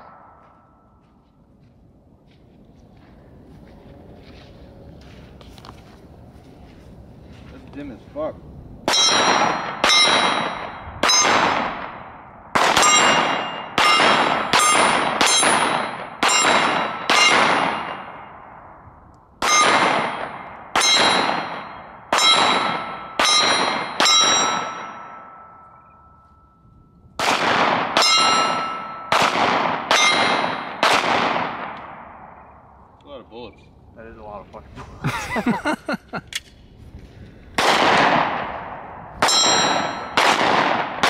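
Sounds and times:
steel target plate ringing: 8.9 - 11.3, 12.8 - 18.6, 19.4 - 27.1, 28.0 - 29.2, 29.9 - 30.8, 39.2 - 40.2
pistol shots: 8.9 - 18.3, 19.4 - 25.4, 27.2 - 32.5, 37.6 - 41.0.

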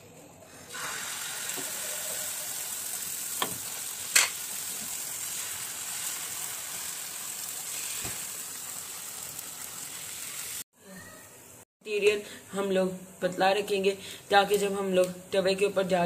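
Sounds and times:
batter sizzling in hot oil: 0.7 - 10.7.

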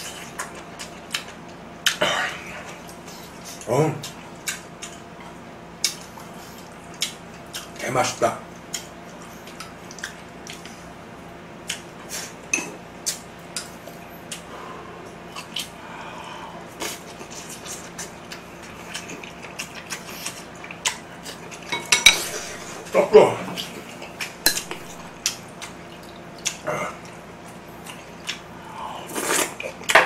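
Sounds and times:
chopsticks clinking on dishes: 21.7 - 22.6, 24.5 - 24.9.

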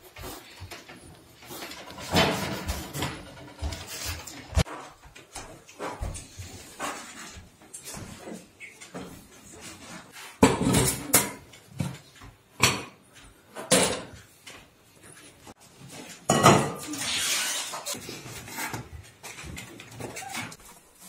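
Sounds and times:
metal kitchenware clanking: 1.4 - 4.7, 10.4 - 11.6, 16.2 - 18.0.

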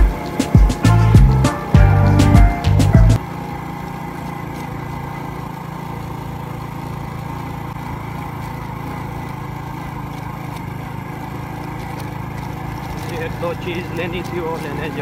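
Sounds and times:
music with heavy beat: 0.0 - 3.2
motorcycle engine running: 0.0 - 15.0.

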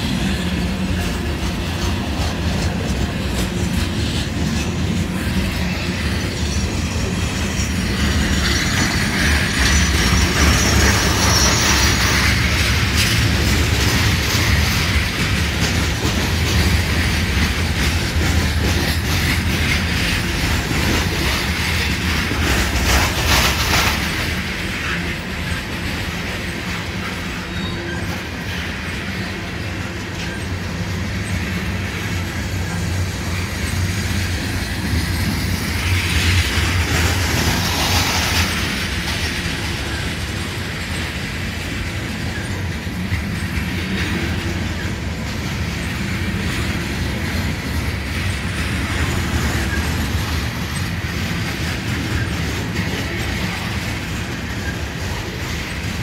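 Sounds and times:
clickety-clack of train wheels: 0.0 - 56.0
diesel locomotive engine rumble: 0.0 - 56.0
high wheel squeal: 5.6 - 13.4, 26.3 - 31.5.

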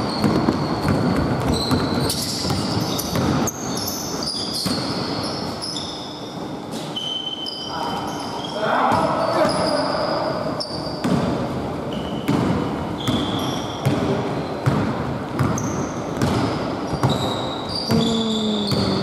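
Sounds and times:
basketball bouncing on wooden floor: 0.0 - 3.5, 12.1 - 19.0
sneakers squeaking: 0.0 - 19.0.

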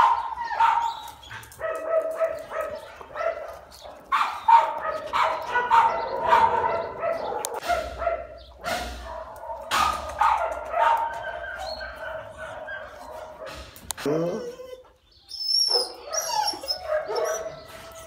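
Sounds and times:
dog whining and yipping: 14.2 - 18.0.

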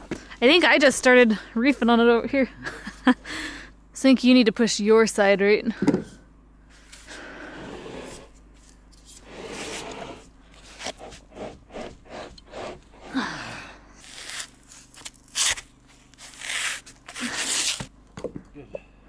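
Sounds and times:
scrapes and rustling of pipe handling: 8.0 - 13.1.

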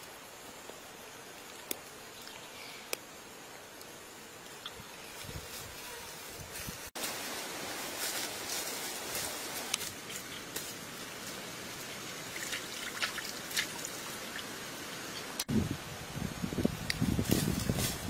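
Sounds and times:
stream hissing: 6.9 - 17.1.

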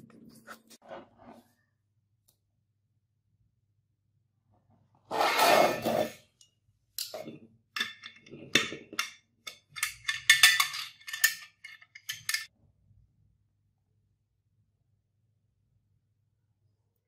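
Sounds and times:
metal parts clinking: 8.9 - 12.5.

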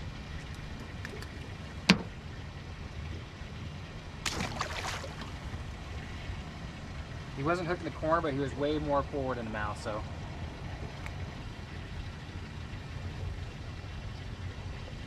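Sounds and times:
steady low rumble: 0.0 - 15.0
fish splashing into water: 4.2 - 5.7.

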